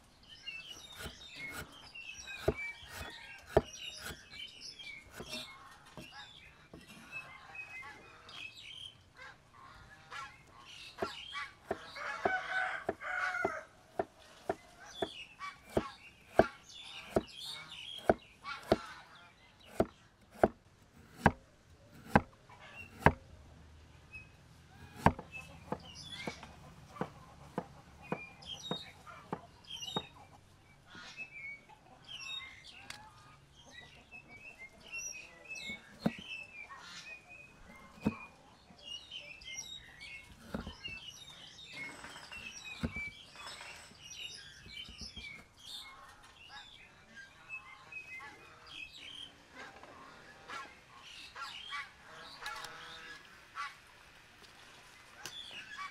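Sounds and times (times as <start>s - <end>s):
small birds chirping: 0.0s - 55.9s
cleaver chopping on wooden block: 0.7s - 4.4s, 5.0s - 6.1s, 11.0s - 19.0s, 19.7s - 23.2s, 24.8s - 30.1s, 35.7s - 36.3s, 37.7s - 38.3s, 40.4s - 40.9s, 42.3s - 43.2s.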